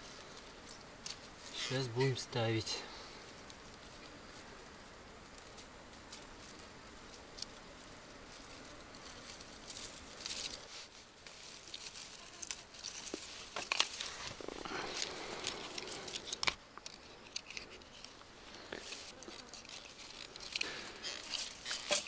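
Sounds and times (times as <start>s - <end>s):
hands rustling fishing gear: 8.3s - 22.0s.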